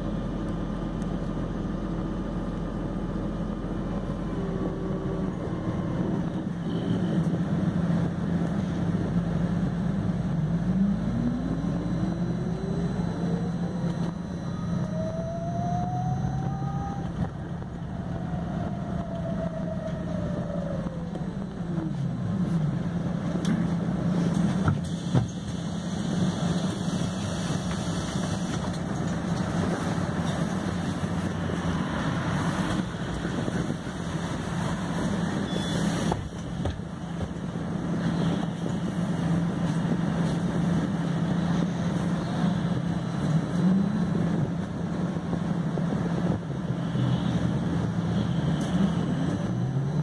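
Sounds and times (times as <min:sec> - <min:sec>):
bus drivetrain hum: 0:00.0 - 0:50.0
road and body noise: 0:00.0 - 0:50.0
short rising whine: 0:09.8 - 0:22.4.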